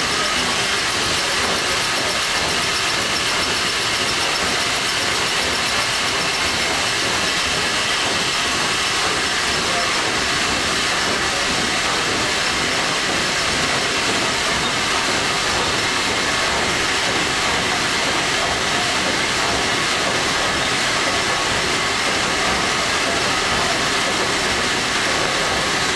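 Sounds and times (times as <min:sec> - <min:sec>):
steam engine machinery running: 0:00.0 - 0:25.9.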